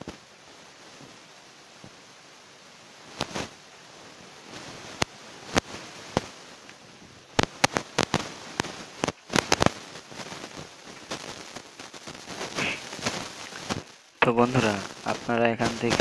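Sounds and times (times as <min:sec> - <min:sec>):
faint steady hiss: 0:00.0 - 0:16.0
sharp irregular clicks and cracks: 0:04.9 - 0:16.0.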